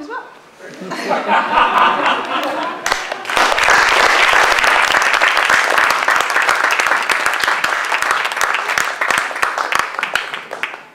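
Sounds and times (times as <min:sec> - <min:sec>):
audience applauding: 0:01.7 - 0:10.9.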